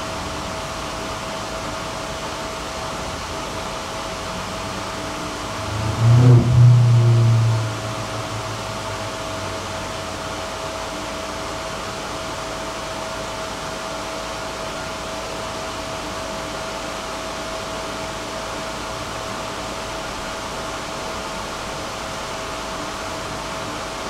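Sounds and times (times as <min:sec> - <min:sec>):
tram ventilation whirring: 0:00.0 - 0:13.1
constant high whine: 0:00.0 - 0:24.0.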